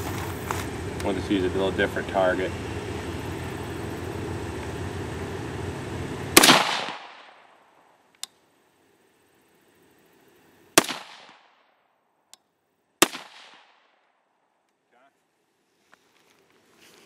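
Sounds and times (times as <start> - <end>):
rifle shots with echo: 6.4 - 7.8, 10.8 - 11.6, 13.0 - 14.0.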